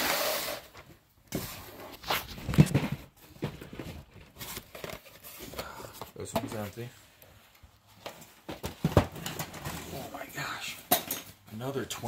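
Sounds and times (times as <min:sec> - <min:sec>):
cardboard boxes rustling: 0:00.6 - 0:07.0, 0:07.7 - 0:10.4
boxes knocking on table: 0:08.5 - 0:09.5.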